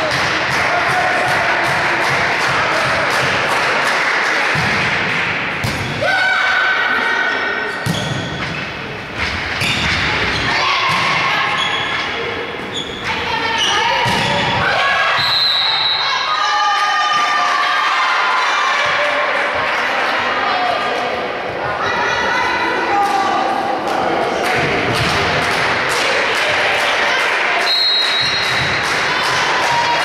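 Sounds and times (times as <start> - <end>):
players shouting: 0.0 - 5.0, 13.2 - 30.0
volleyball thumping off arms: 4.5 - 6.0.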